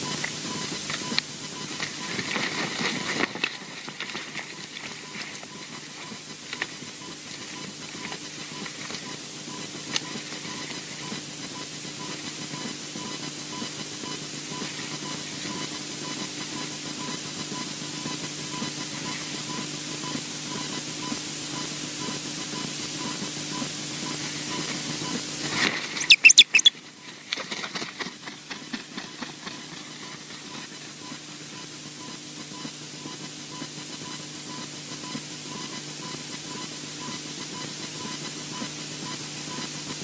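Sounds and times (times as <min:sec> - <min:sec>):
faint regular pip: 0:26.0 - 0:26.7.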